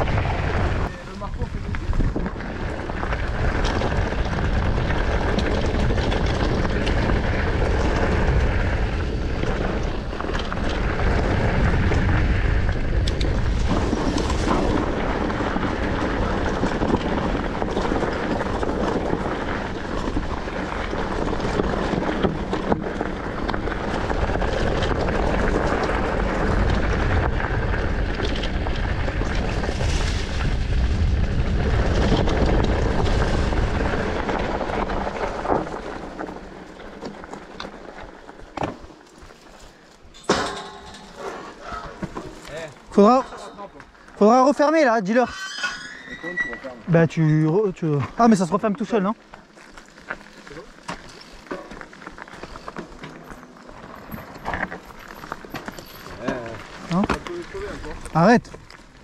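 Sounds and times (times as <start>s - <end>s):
wind rushing over microphone: 0.0s - 37.2s
tyres rolling over rough trail: 0.0s - 59.0s
bike clicks and knocks: 1.5s - 44.2s, 48.0s - 59.0s.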